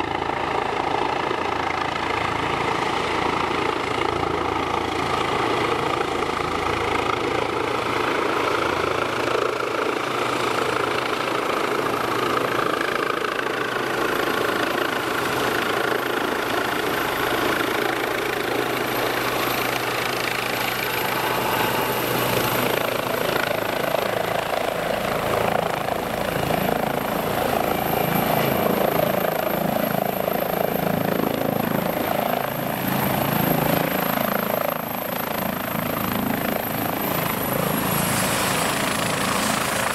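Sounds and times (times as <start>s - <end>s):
helicopter rotor and turbine: 0.0s - 39.9s
high turbine whine: 14.4s - 39.9s.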